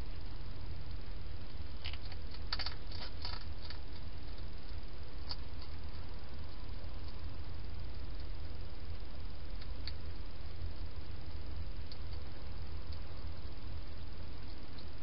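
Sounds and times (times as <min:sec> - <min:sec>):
steady low hum: 0:00.0 - 0:15.0
hedgehog eating clicks: 0:01.8 - 0:07.2, 0:09.5 - 0:10.0.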